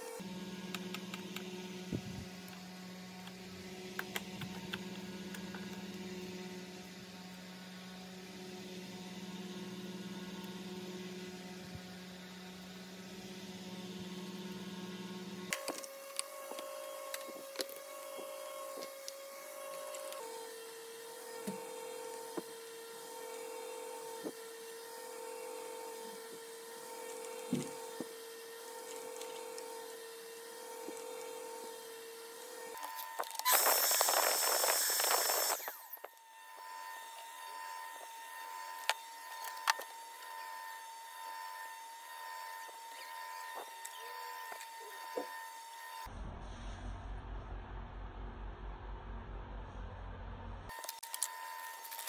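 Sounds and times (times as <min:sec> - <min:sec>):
electrical hum: 0:25.6 - 0:45.5.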